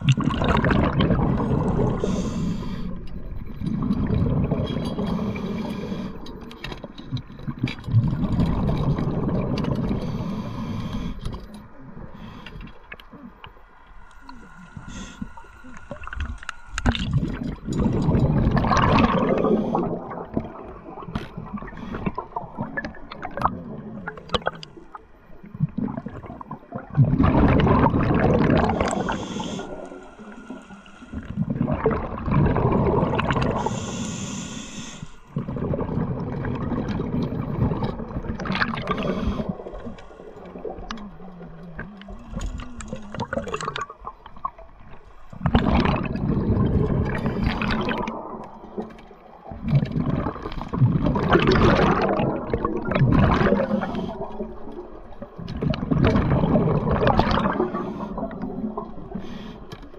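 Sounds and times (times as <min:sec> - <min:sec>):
gurgling exhaled bubbles: 0:00.0 - 0:13.5, 0:14.2 - 0:34.5, 0:35.3 - 0:59.7
diver breathing through regulator: 0:01.2 - 0:03.1, 0:05.0 - 0:06.5, 0:09.9 - 0:12.9, 0:13.9 - 0:18.2, 0:28.5 - 0:31.6, 0:33.4 - 0:35.6, 0:38.8 - 0:40.7, 0:53.4 - 0:54.5, 0:57.5 - 0:58.4.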